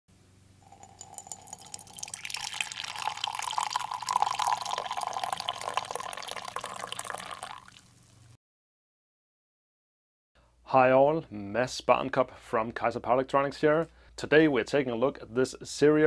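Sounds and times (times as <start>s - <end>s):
liquid pouring into a ceramic mug: 0.6s - 8.1s.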